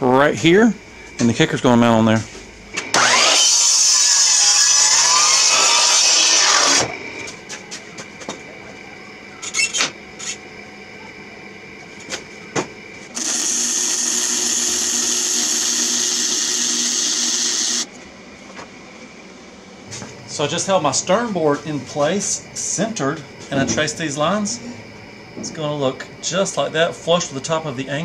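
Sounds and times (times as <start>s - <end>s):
welder arc hissing: 0.7s - 7.3s, 13.1s - 17.9s
miter saw cutting wood: 2.8s - 7.3s, 13.2s - 17.9s.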